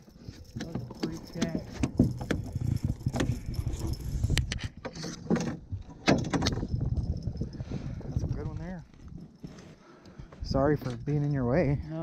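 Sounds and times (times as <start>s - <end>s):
metallic rattle: 0.0s - 7.6s
wind rumble on microphone: 0.0s - 9.4s
sharp knocks and clicks: 0.6s - 3.5s.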